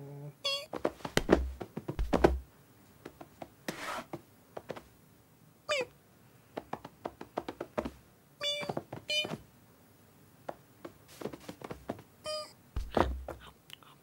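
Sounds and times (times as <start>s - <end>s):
high-pitched kitten mews: 5.7s - 5.9s, 12.3s - 12.6s.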